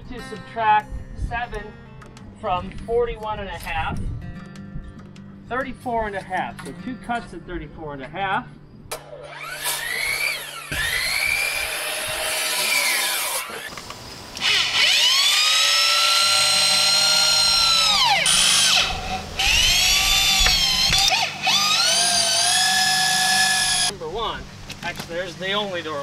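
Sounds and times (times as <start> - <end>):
power drill motor whine: 9.2 - 13.7, 14.4 - 23.9.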